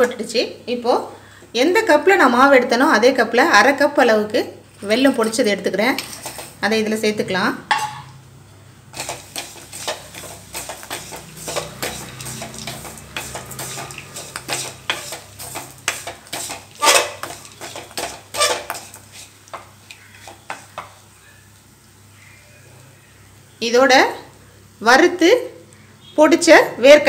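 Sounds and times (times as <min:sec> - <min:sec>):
spatula scraping and knocking pan: 0:07.7 - 0:08.1, 0:08.9 - 0:21.0.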